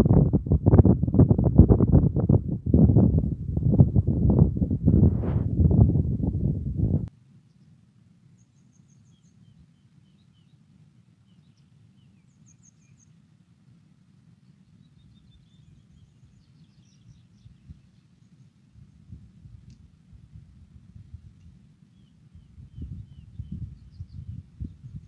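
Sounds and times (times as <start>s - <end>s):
low steady rumble: 0.0s - 25.0s
small birds chirping: 7.4s - 13.3s, 14.4s - 19.8s, 21.4s - 25.0s.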